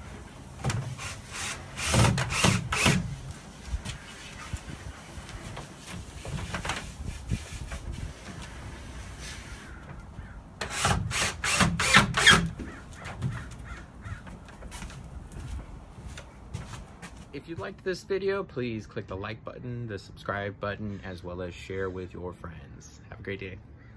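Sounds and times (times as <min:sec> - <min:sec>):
cordless drill driving screws: 0:00.9 - 0:03.2, 0:10.6 - 0:12.5
crow cawing: 0:09.6 - 0:10.5, 0:12.6 - 0:14.6.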